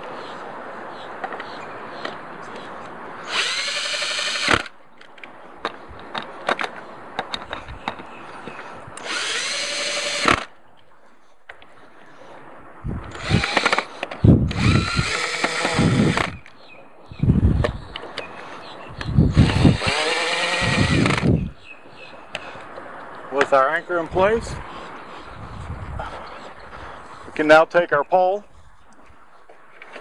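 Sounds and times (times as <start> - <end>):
cordless drill driving screws: 3.3 - 4.7, 9.0 - 10.5, 13.1 - 13.9, 14.5 - 16.4, 19.3 - 21.4.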